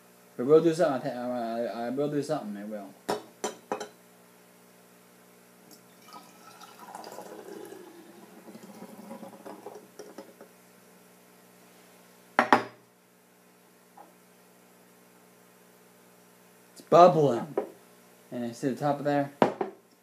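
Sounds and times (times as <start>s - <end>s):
glass clink: 3.1s - 4.0s
liquid pouring into glass jar: 5.9s - 10.2s.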